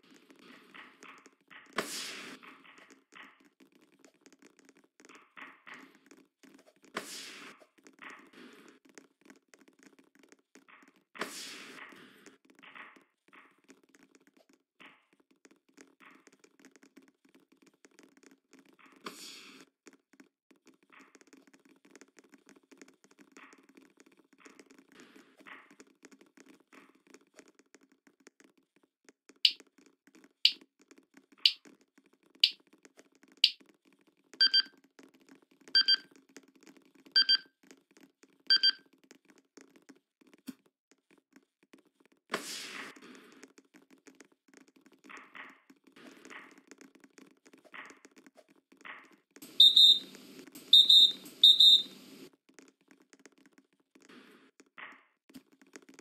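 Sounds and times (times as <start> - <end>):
electronic beeps: 34.4 - 34.7, 35.8 - 36.0, 37.2 - 37.4, 38.5 - 38.8, 49.6 - 52.0.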